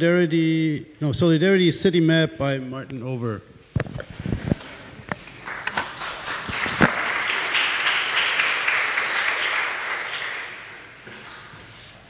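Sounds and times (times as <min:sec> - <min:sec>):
audience applauding: 0:05.4 - 0:11.6.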